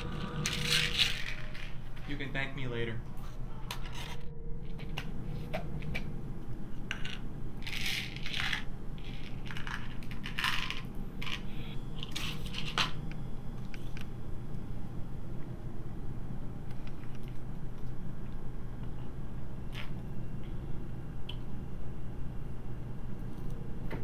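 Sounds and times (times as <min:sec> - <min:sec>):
steady low hum: 0:00.0 - 0:24.0
pills rattling in plastic bottle: 0:07.6 - 0:11.4.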